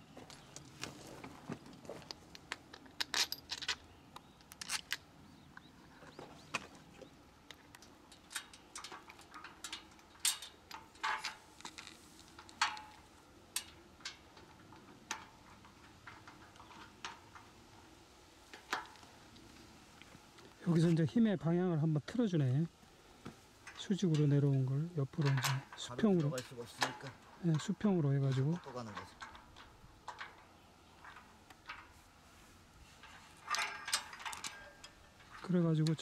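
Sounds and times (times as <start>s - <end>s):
metal parts clicking and clinking: 1.9s - 5.0s, 7.4s - 17.8s, 18.4s - 19.5s, 23.6s - 31.9s, 33.0s - 36.0s.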